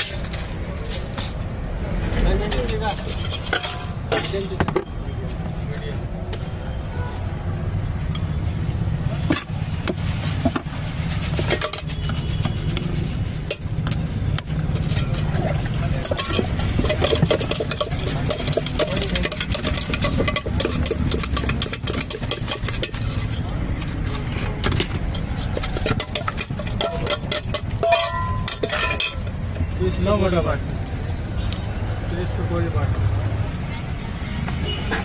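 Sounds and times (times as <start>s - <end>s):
spoon clinking in steel bowl: 16.0s - 23.2s, 25.5s - 29.3s.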